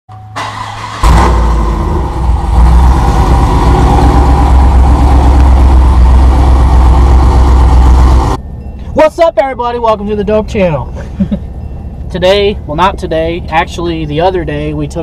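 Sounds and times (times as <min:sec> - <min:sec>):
engine cranking and starting: 0:00.4 - 0:03.4
engine idling loudly: 0:01.0 - 0:08.4.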